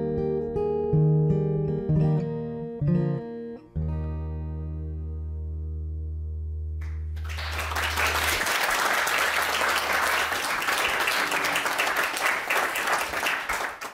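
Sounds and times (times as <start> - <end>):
audience applause: 6.8 - 13.9.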